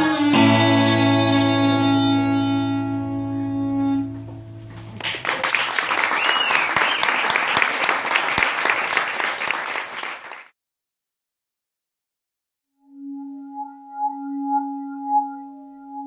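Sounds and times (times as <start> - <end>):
electric guitar chord ringing: 0.0 - 5.0
audience clapping: 4.9 - 10.6
short cheer: 5.0 - 8.8.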